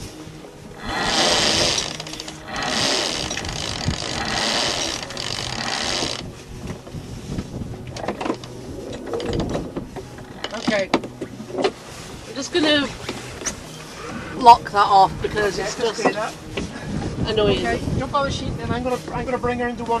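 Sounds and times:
winch ratcheting clicks: 0.9 - 6.2.

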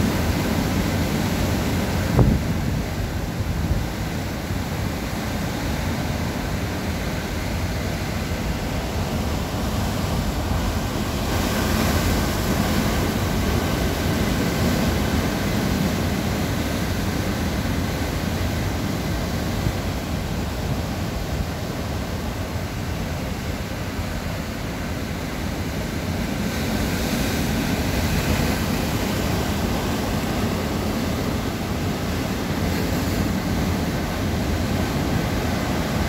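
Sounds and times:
surf breaking over rocks: 0.0 - 4.0.

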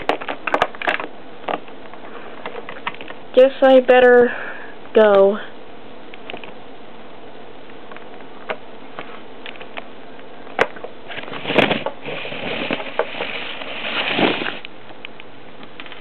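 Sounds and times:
rustling hiss: 11.1 - 14.7.

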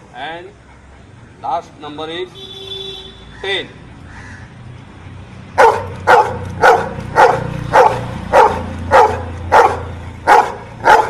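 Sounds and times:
dog barking: 5.6 - 11.0.

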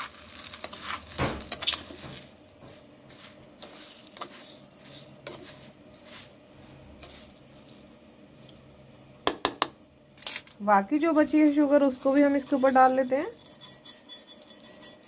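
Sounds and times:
metal spoon scraping ceramic bowl: 11.4 - 15.0.

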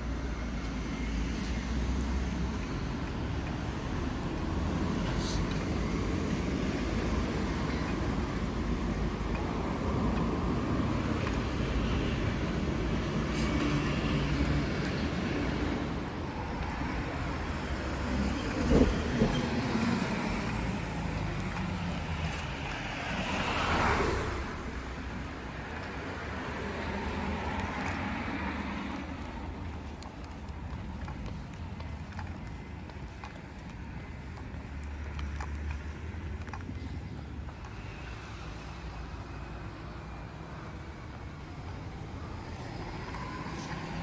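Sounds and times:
road traffic rumble: 0.0 - 44.0.

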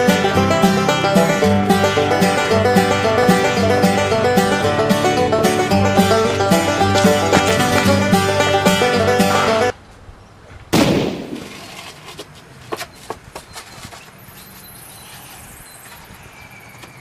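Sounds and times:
music: 0.0 - 9.7
loud bang: 10.7 - 11.8.

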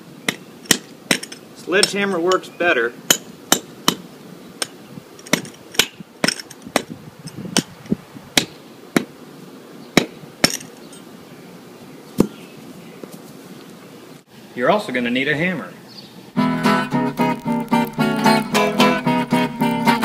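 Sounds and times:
mallet striking chisel on stone: 3.1 - 4.0.

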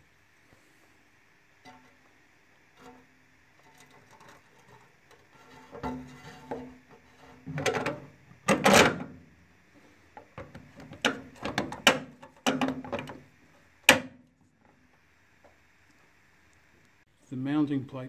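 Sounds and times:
plastic knocks and scrapes: 3.6 - 9.1, 10.2 - 13.2.

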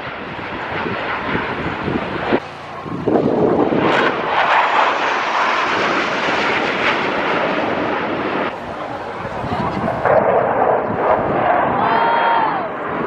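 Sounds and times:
jet engine roar: 0.0 - 13.0.

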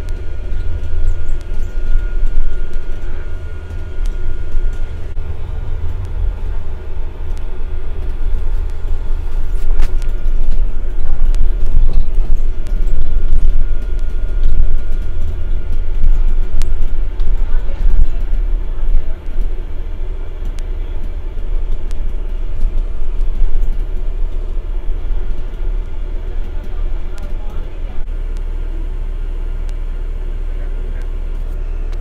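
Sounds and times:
bus engine and road rumble: 0.0 - 32.0
faint steady whine: 0.0 - 32.0.

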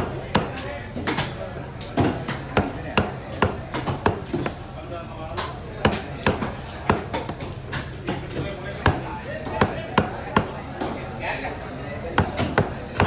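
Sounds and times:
knife chopping on wooden block: 2.0 - 4.6, 5.8 - 8.2, 12.2 - 13.0.

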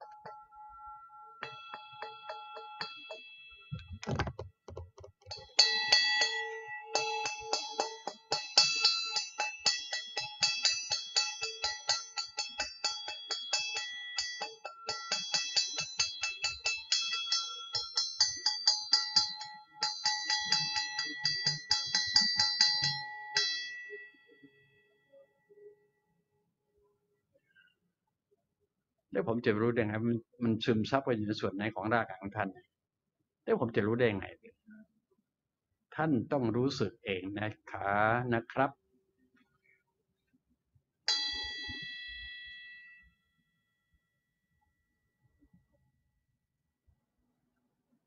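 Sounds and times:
singing bowl ringing: 0.0 - 4.0, 5.3 - 25.7, 41.1 - 45.6
striker tapping singing bowl: 0.0 - 24.1.

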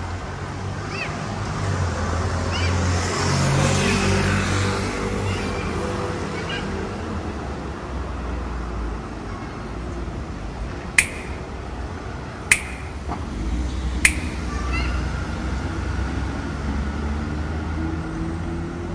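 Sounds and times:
sharp ticks: 11.0 - 11.5, 12.5 - 13.1, 14.0 - 14.7.

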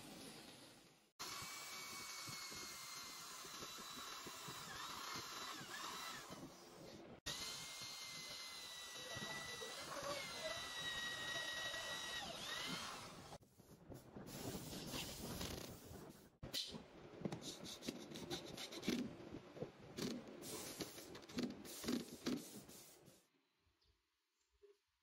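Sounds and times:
electric drill boring into wood: 1.2 - 13.4.

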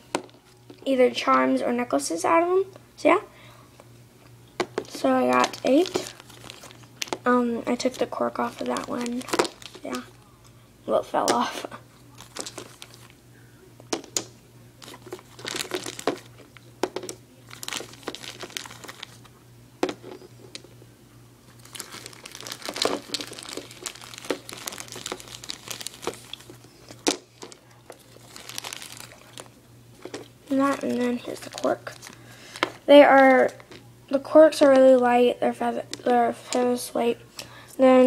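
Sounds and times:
faint low hum: 0.0 - 38.0
plastic packaging crinkling: 4.6 - 10.2, 12.1 - 13.2, 13.9 - 20.7, 21.5 - 33.9.

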